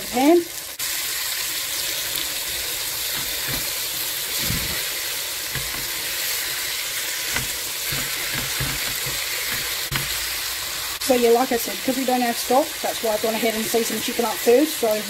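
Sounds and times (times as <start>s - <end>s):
chicken sizzling in a pot: 0.0s - 15.0s
tongs knocking: 3.2s - 3.8s, 5.5s - 6.0s, 7.3s - 10.2s.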